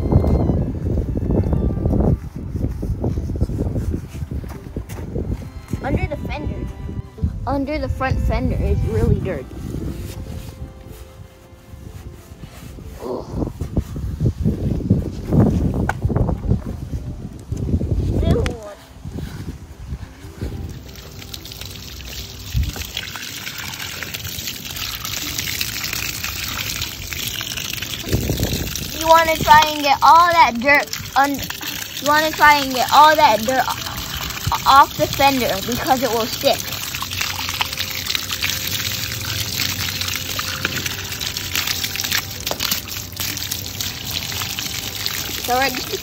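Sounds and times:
hose water spraying on plastic: 17.6 - 46.0.

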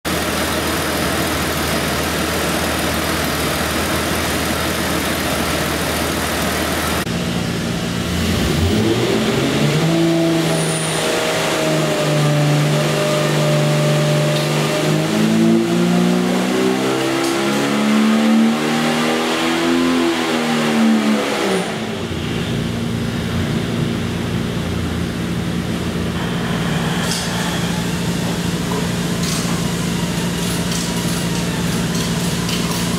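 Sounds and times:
engine revving on a dyno: 0.1 - 32.9.

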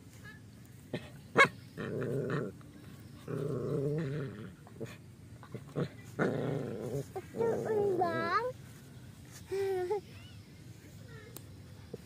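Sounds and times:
small dog growling: 1.4 - 2.6, 3.2 - 8.3.

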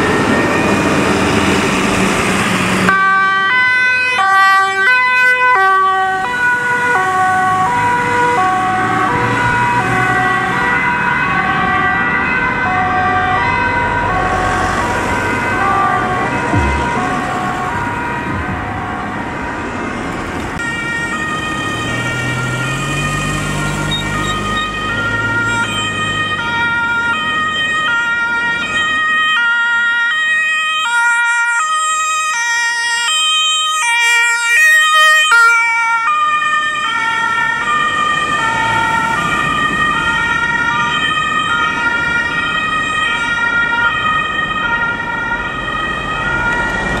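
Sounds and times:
road traffic noise: 0.0 - 47.0
two-tone emergency horn: 20.6 - 26.6.

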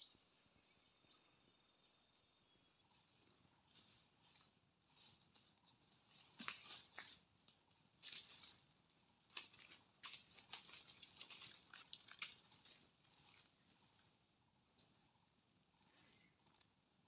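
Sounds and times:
dry leaves rustling and crackling: 3.7 - 13.9.

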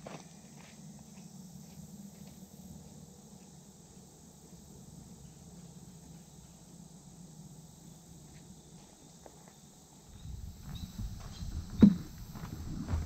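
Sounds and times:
chorus of insects: 0.0 - 13.0
low steady hum: 10.0 - 13.0.

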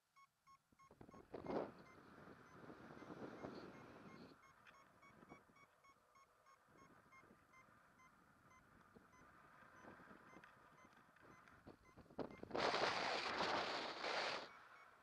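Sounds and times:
variometer beeping: 0.0 - 12.5
wind noise on microphone: 0.9 - 4.4, 11.6 - 14.5.

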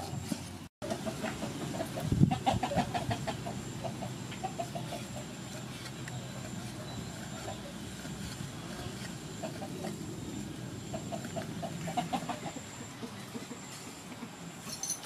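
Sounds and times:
chickens clucking: 0.0 - 14.6.

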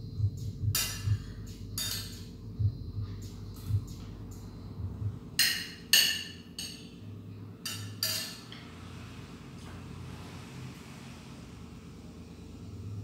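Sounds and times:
sharp cutlery clinks: 0.8 - 2.3, 5.4 - 7.0, 7.6 - 8.5
cutlery scraping on a plate: 1.8 - 2.3, 5.4 - 7.0, 7.6 - 8.7.

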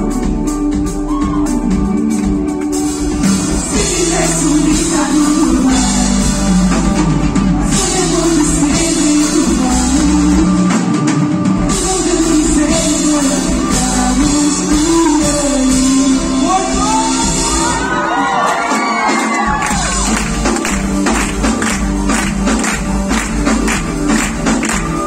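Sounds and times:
drum kit: 0.0 - 25.0
live pop-rock band playing: 0.0 - 25.0.

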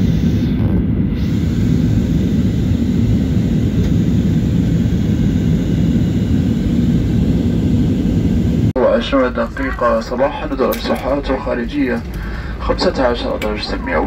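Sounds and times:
rushing air: 0.0 - 8.7, 11.6 - 12.7
jet engines droning: 0.0 - 14.0.

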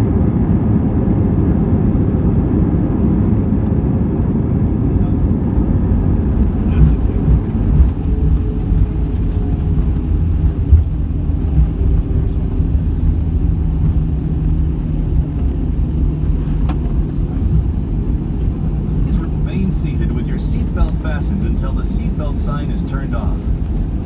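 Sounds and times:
airliner cabin rumble: 0.0 - 24.0
faint steady hum: 17.3 - 24.0.

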